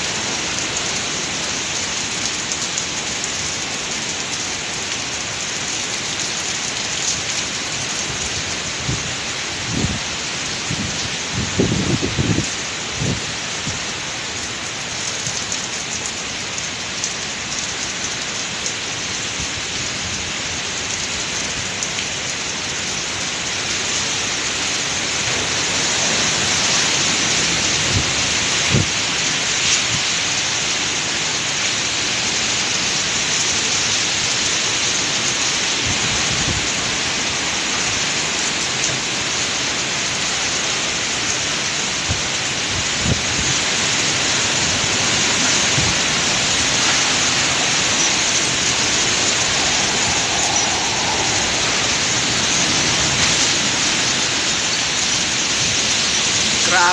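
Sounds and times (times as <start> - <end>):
heavy driving rain: 0.0 - 56.9
strong wind gusts: 7.0 - 14.3, 19.3 - 32.2, 34.0 - 39.1, 42.0 - 56.9.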